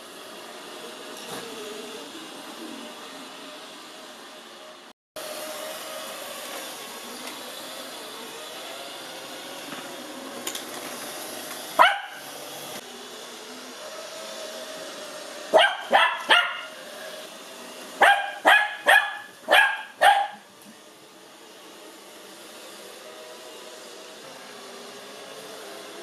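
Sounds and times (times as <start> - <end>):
robot vacuum running: 0.0 - 26.0
puppy barking in high yaps: 11.8 - 12.2, 15.5 - 16.7, 18.0 - 20.5.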